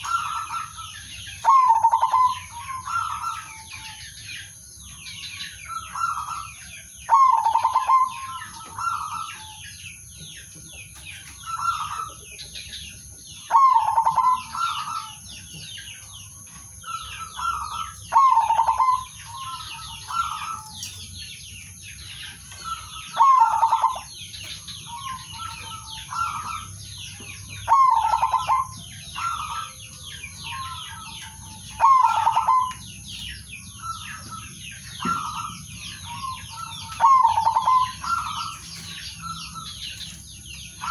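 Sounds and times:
doves cooing: 0:00.0 - 0:04.2, 0:05.6 - 0:09.6, 0:13.4 - 0:15.6, 0:16.8 - 0:20.8, 0:22.4 - 0:39.9
high-pitched chirping: 0:00.0 - 0:40.9.

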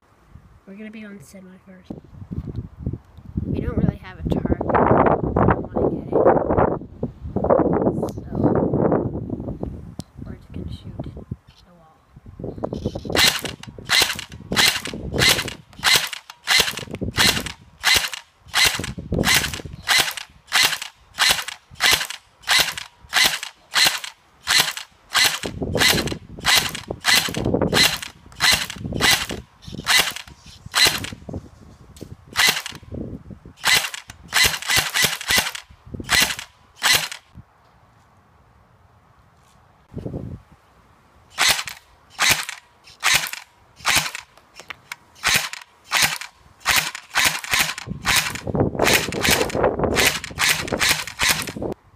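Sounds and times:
airsoft gun shots: 0:13.2 - 0:31.2, 0:33.6 - 0:37.2, 0:41.4 - 0:44.3, 0:45.2 - 0:51.6.

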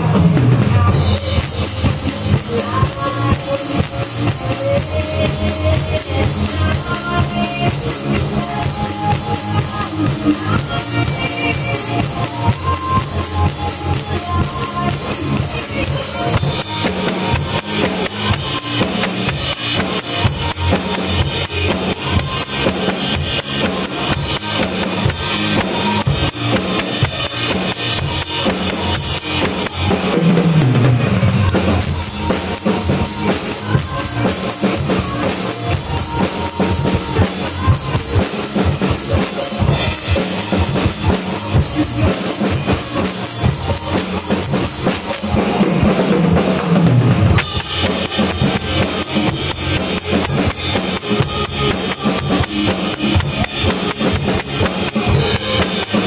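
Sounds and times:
acoustic drum kit groove: 0:00.0 - 0:56.0.

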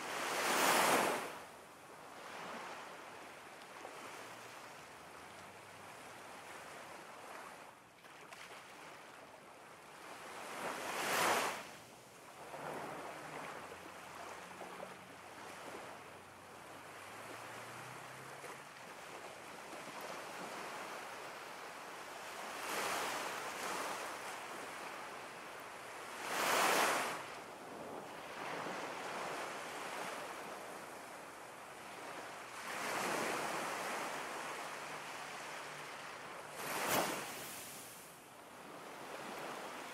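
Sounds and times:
ocean waves breaking: 0:31.8 - 0:38.0.

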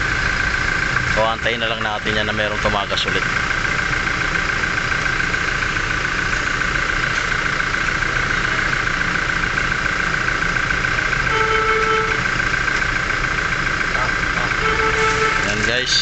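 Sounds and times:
car engine idling: 0:00.0 - 0:16.0
short pitched tone: 0:11.3 - 0:12.3, 0:14.4 - 0:15.8.

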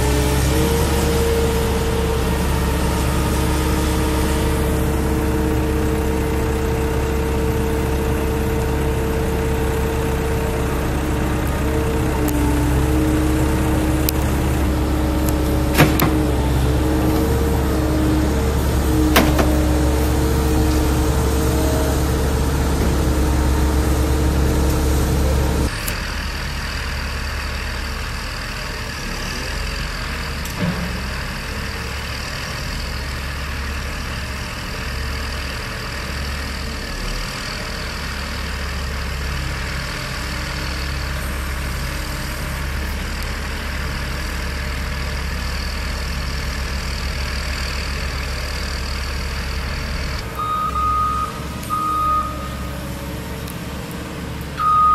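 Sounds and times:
machinery hum: 0:00.0 - 0:37.3
diesel engine running: 0:00.0 - 0:54.9.

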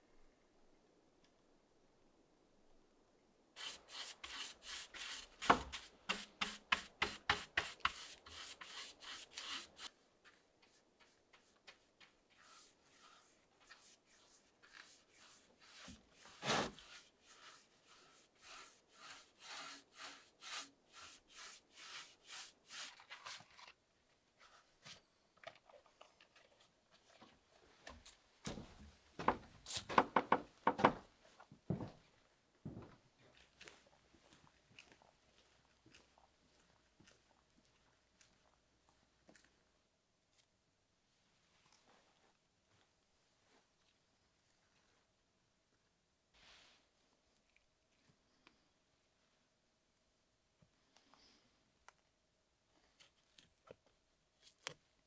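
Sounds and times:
paintbrush scrubbing on wood: 0:03.6 - 0:23.6.

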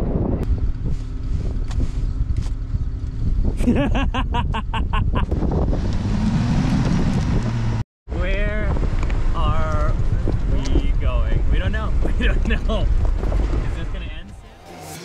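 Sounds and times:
wind on microphone: 0:00.0 - 0:14.0
wheels spinning in snow: 0:00.5 - 0:03.5
car engine revving: 0:05.2 - 0:07.8.

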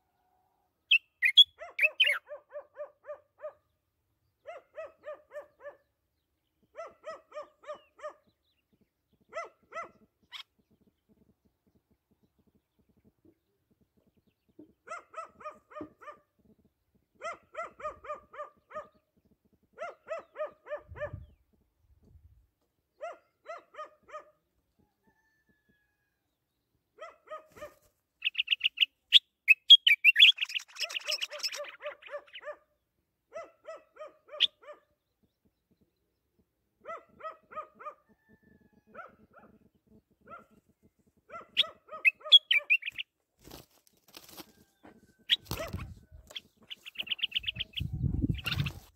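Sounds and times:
songbird chirping: 0:00.8 - 0:02.4, 0:27.7 - 0:32.6, 0:40.4 - 0:43.2, 0:43.8 - 0:48.9
dog yapping: 0:09.3 - 0:10.0, 0:14.9 - 0:16.2, 0:17.2 - 0:18.9, 0:19.8 - 0:21.1, 0:30.8 - 0:32.6, 0:41.3 - 0:42.9, 0:45.4 - 0:45.9.

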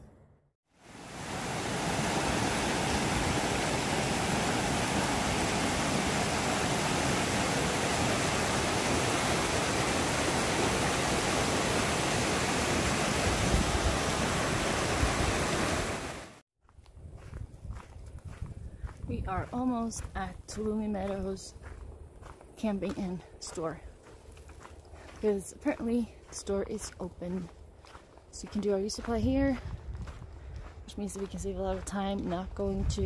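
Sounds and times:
creek rushing over rocks: 0:00.8 - 0:16.4.

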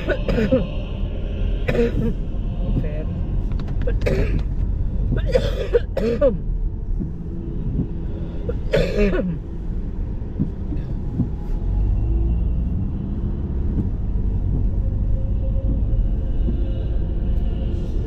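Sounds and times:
road and engine rumble in car: 0:00.0 - 0:18.0.

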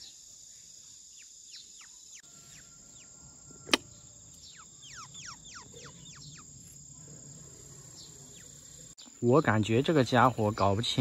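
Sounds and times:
crickets chirring: 0:00.0 - 0:11.0
small bird chirping: 0:00.0 - 0:11.0
sharp click: 0:03.7 - 0:03.9.

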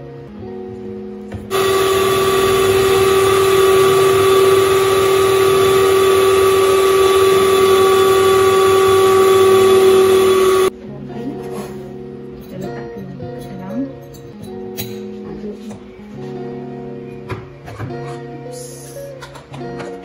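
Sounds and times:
electric hand mixer whining: 0:01.5 - 0:10.7.

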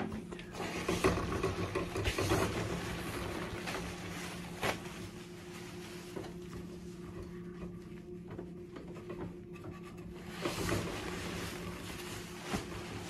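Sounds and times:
steady low hum: 0:00.0 - 0:13.0
toilet paper rustling off roll: 0:00.2 - 0:06.8, 0:10.1 - 0:13.0.

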